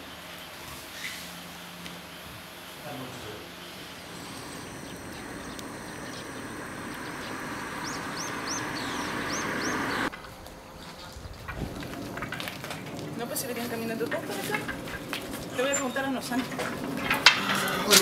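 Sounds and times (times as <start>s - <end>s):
bird chirping: 3.8s - 10.1s
car engine and tyre noise: 3.9s - 10.1s.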